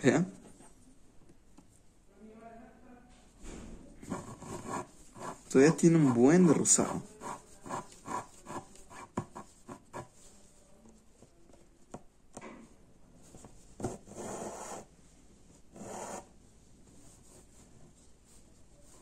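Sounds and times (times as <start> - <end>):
thread rasping through cloth: 4.0 - 10.2
fingers rubbing fabric: 4.0 - 10.6.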